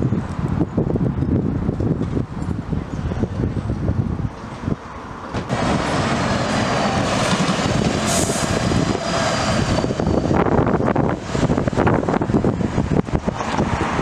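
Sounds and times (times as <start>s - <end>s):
fire engine driving past: 4.4s - 14.0s.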